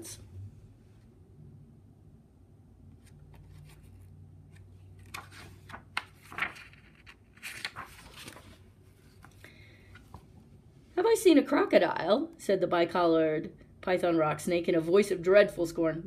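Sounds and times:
low steady hum: 0.0s - 16.0s.

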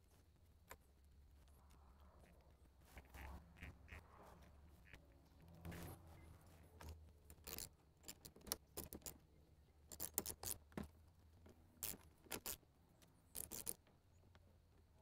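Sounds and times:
metallic clicks and scrapes of nuts: 4.9s - 11.0s, 11.8s - 14.0s.

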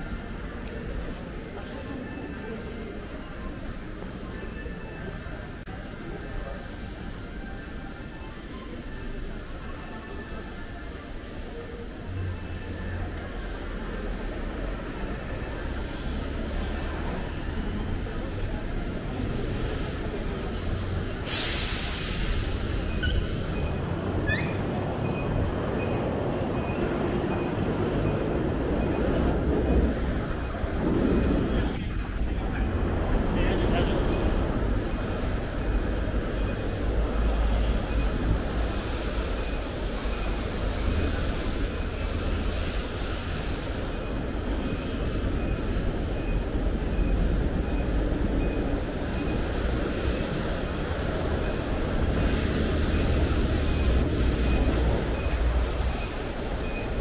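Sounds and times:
train rumbling on rails: 0.0s - 57.0s
loud hiss: 21.2s - 22.9s
wheel squeals: 22.7s - 31.8s.

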